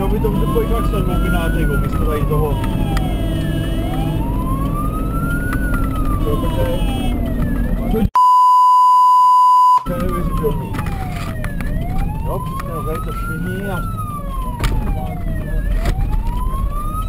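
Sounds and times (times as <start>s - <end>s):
engine and road rumble: 0.0s - 8.2s, 9.8s - 17.0s
fire engine siren wailing: 0.0s - 8.2s, 9.7s - 17.0s
steady beep: 8.2s - 10.0s.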